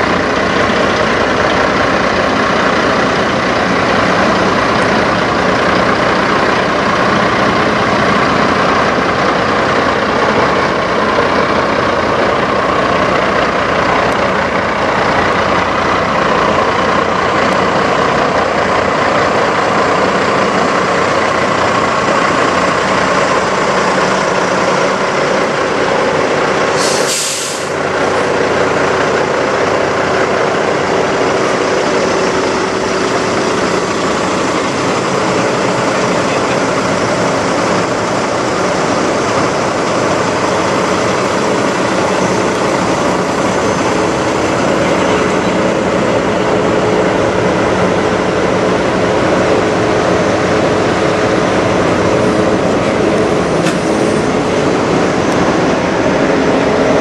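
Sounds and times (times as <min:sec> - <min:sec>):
diesel truck engine idling: 0:00.0 - 0:57.0
compressed air hiss: 0:26.7 - 0:27.8.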